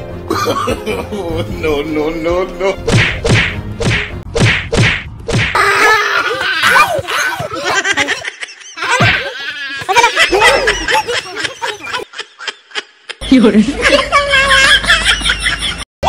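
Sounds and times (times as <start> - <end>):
whacks of blows landing: 2.9 - 5.6.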